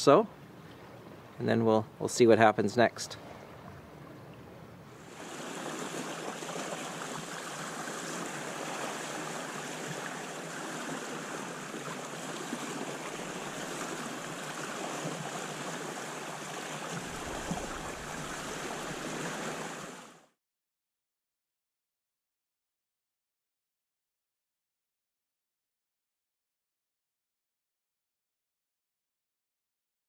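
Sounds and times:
water rushing along boat hull: 3.1 - 20.4
deep rumble: 17.0 - 19.2.

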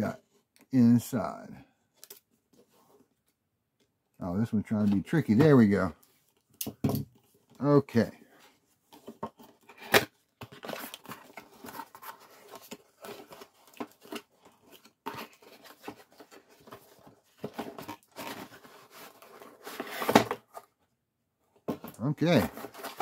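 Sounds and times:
cardboard box rustling and cracking: 9.0 - 20.8, 21.7 - 23.0.

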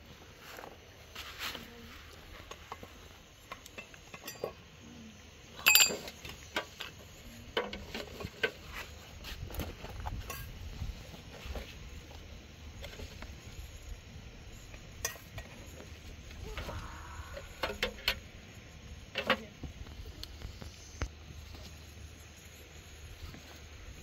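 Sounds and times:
utensils clinking against metal pots: 3.6 - 4.6, 5.6 - 6.8.

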